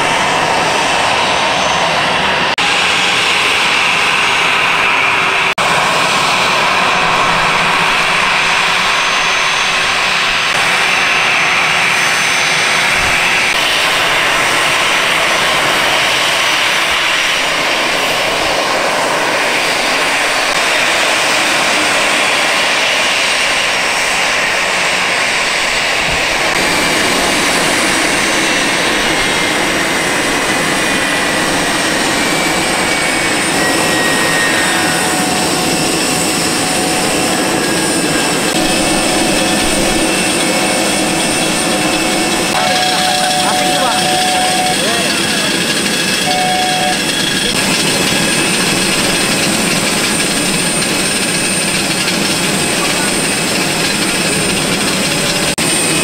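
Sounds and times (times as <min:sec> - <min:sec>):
jet engines idling: 0:00.0 - 0:56.0
high whining tones: 0:30.7 - 0:52.0.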